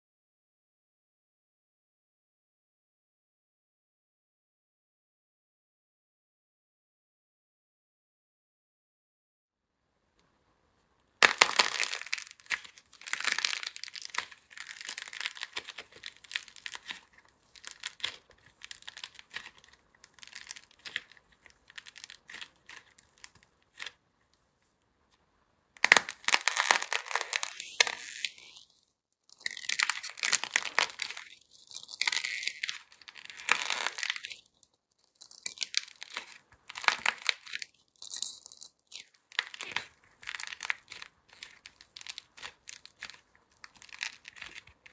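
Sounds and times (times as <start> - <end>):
clay crackling and crunching: 11.2 - 25.2, 25.8 - 44.9.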